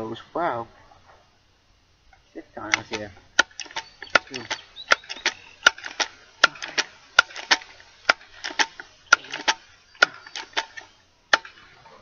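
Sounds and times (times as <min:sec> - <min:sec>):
air rifle pump lever clacks: 0:02.7 - 0:11.6.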